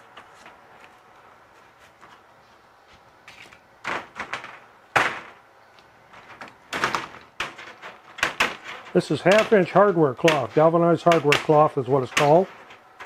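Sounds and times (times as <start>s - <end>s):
wire mesh rattling and scraping: 3.3s - 5.4s, 6.0s - 13.0s.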